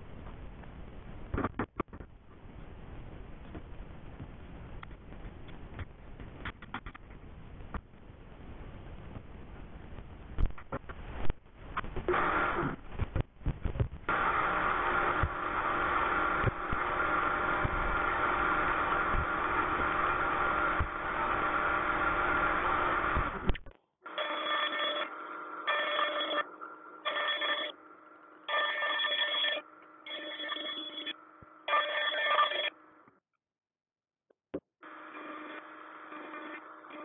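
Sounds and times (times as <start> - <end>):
wood router cutting wood: 14.1 - 23.5
router whine: 14.1 - 32.6.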